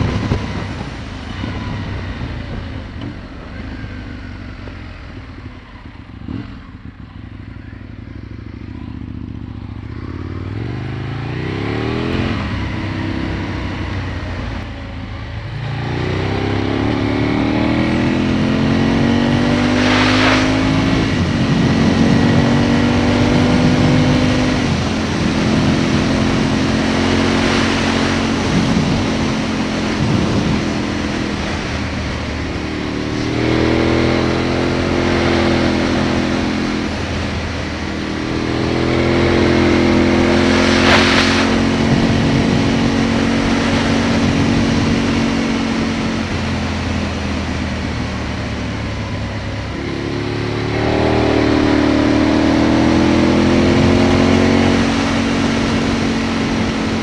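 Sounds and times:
wind rush: 0.0s - 3.6s, 17.7s - 48.0s
motorcycle engine accelerating: 0.0s - 57.0s.

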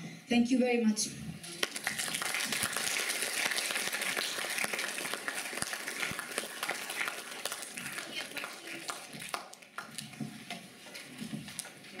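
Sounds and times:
audience applauding: 1.5s - 10.0s.

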